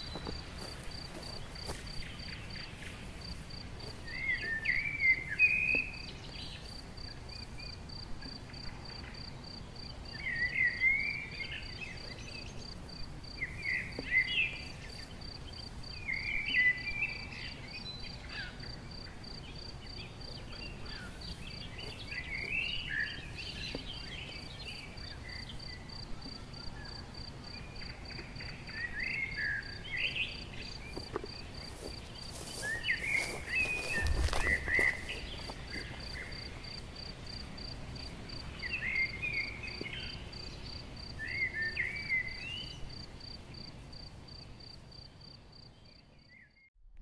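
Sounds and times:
birds singing: 0:00.0 - 0:36.8, 0:37.6 - 0:43.6
cricket chirping: 0:00.0 - 0:46.7
rustling: 0:30.9 - 0:36.8.

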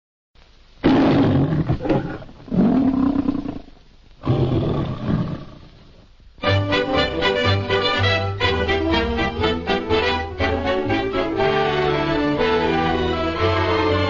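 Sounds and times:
lion roaring: 0:00.8 - 0:05.7.

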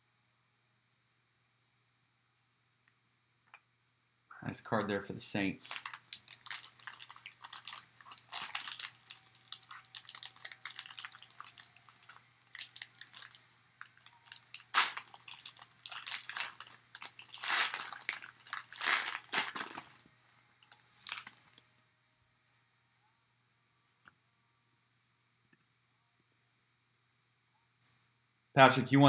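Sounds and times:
foil wrapper crinkling and tearing: 0:05.6 - 0:21.6.

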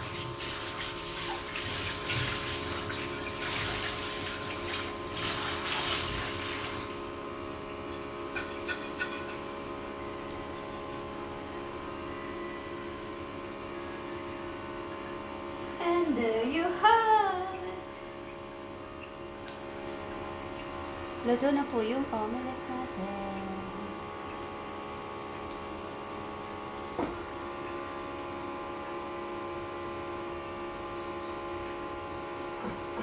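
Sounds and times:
water running from tap: 0:00.0 - 0:09.5, 0:17.5 - 0:26.9
faint steady hum: 0:00.0 - 0:33.0.

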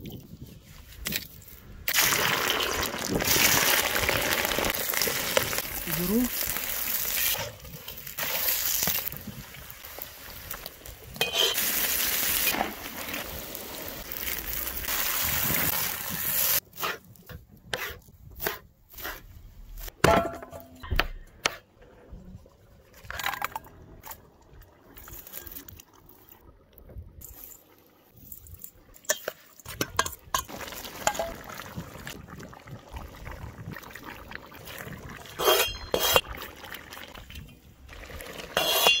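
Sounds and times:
pot hissing over campfire: 0:01.9 - 0:17.2, 0:30.5 - 0:37.2
metal utensil clinking on pot: 0:11.2 - 0:11.6, 0:35.4 - 0:36.2, 0:38.6 - 0:39.0.

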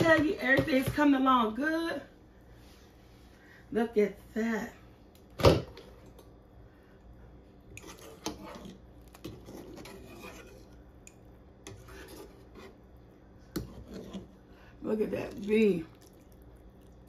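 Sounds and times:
wire skimmer scraping pot: 0:07.7 - 0:12.9, 0:13.5 - 0:15.9.

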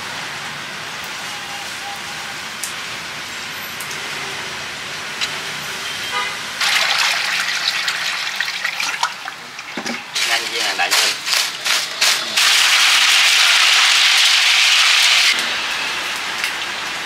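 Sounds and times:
street traffic: 0:00.0 - 0:17.0
vehicle horn toot: 0:05.8 - 0:06.5
fish splashing in water: 0:06.6 - 0:10.4.

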